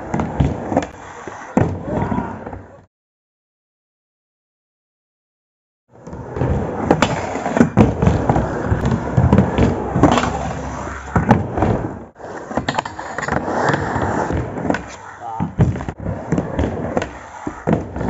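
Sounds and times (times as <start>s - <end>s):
skateboard wheels rumbling: 6.0s - 18.0s.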